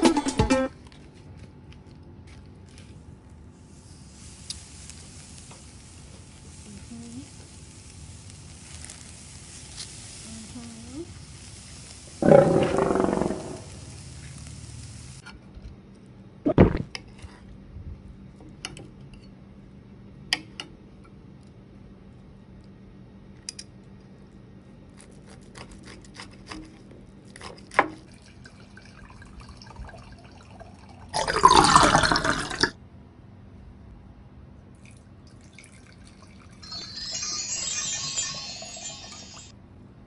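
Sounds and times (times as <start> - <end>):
wine pouring into a glass: 12.2 - 13.7, 28.2 - 32.8, 35.3 - 39.5.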